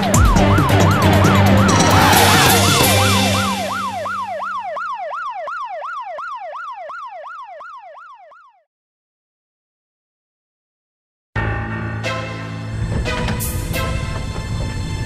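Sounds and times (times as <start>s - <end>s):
police siren yelping: 0.0s - 8.7s.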